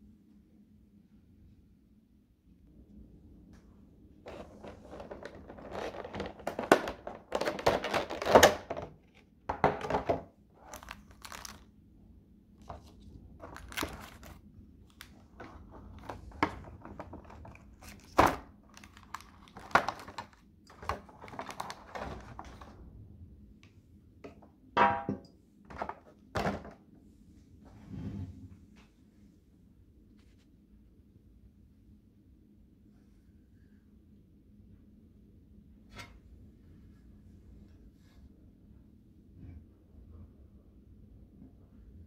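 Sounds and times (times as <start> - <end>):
plastic packaging crinkling: 4.3 - 9.2, 9.8 - 11.7, 12.6 - 22.7.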